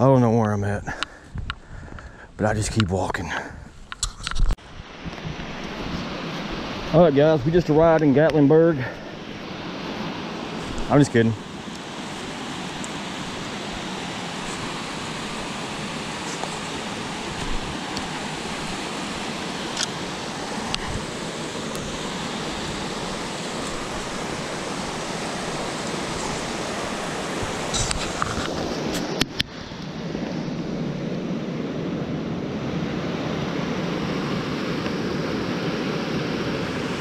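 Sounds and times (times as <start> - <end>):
water rushing over rocks: 5.2 - 29.7.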